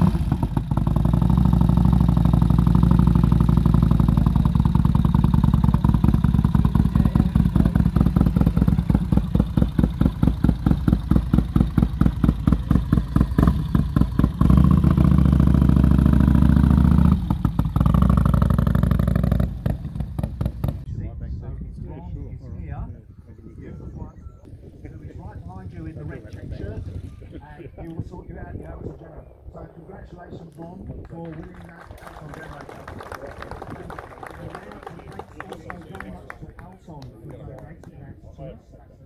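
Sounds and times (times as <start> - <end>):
motorcycle engine idling and pulsing: 0.0 - 21.5.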